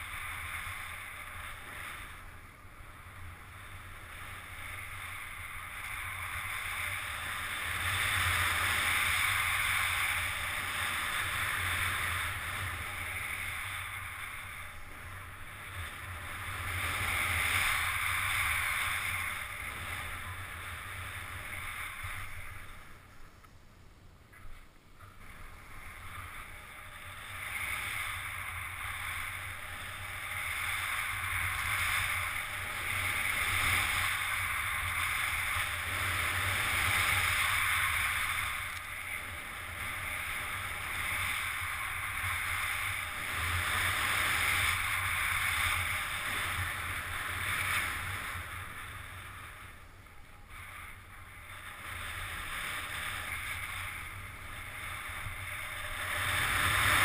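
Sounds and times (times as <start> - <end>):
snowboard sliding through snow: 0.0 - 23.3, 24.6 - 57.0
wind rumbling on microphone: 0.0 - 57.0.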